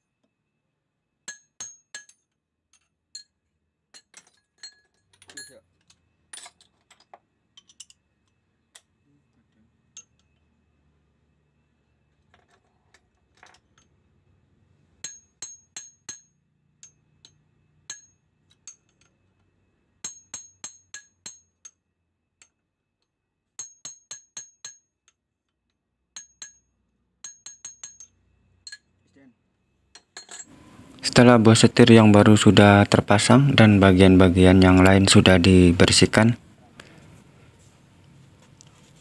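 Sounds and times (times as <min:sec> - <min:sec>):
ringing metal-on-metal taps: 0:01.2 - 0:08.0, 0:09.9 - 0:10.5, 0:15.0 - 0:21.8, 0:23.6 - 0:25.2, 0:26.2 - 0:29.1.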